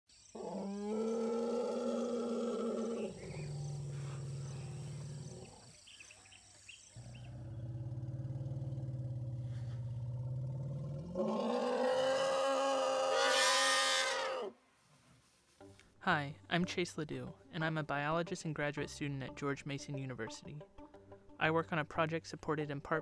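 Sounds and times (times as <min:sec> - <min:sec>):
elephant calls: 0:00.4 - 0:05.8, 0:11.1 - 0:14.6.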